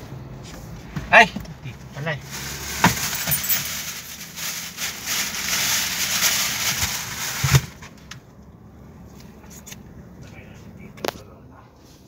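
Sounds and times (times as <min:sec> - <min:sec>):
crinkling rustle: 0:02.3 - 0:07.8.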